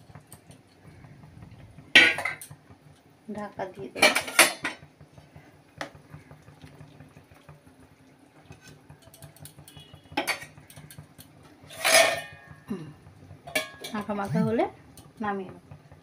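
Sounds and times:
curry simmering: 0.0 - 16.0
metal spatula scraping pan: 11.6 - 12.6.

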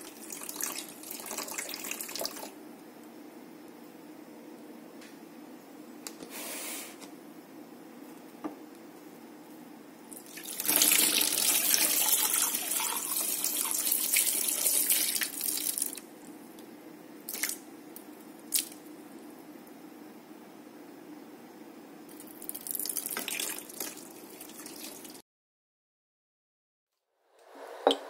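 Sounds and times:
water running in a sink: 0.0 - 2.6, 10.2 - 16.0, 22.1 - 25.2.

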